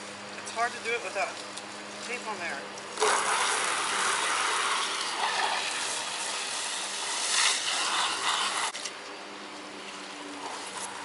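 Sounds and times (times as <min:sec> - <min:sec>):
hose nozzle spraying water: 0:03.0 - 0:08.9.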